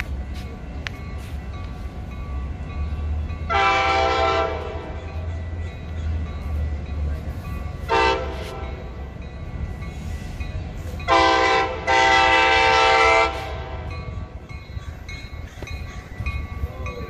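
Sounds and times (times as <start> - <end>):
train air horn blasts: 3.5 - 5.0, 7.8 - 9.0, 11.1 - 13.9.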